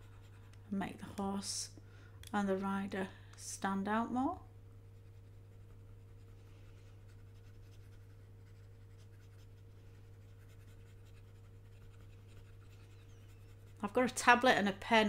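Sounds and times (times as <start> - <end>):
stylus scratching on tablet: 0.0 - 0.8, 4.9 - 14.4
steady low hum: 0.0 - 15.0.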